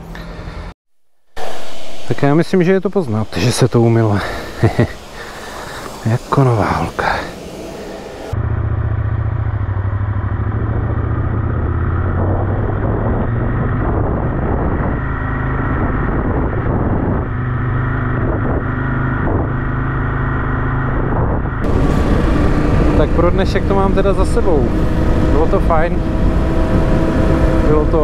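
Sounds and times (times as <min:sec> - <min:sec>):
motorcycle engine running: 0:08.3 - 0:28.0.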